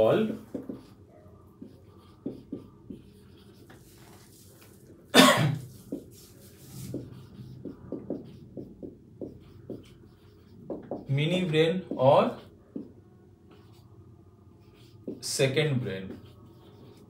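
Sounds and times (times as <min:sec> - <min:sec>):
marker writing on whiteboard: 0:00.0 - 0:17.0
person coughing: 0:05.1 - 0:05.7.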